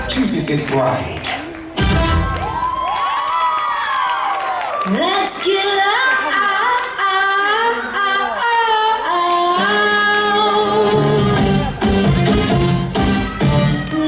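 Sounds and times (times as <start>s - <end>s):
pop song over sound system: 4.8s - 14.0s
woman singing: 4.9s - 11.7s, 13.7s - 14.0s
bass line: 9.7s - 14.0s.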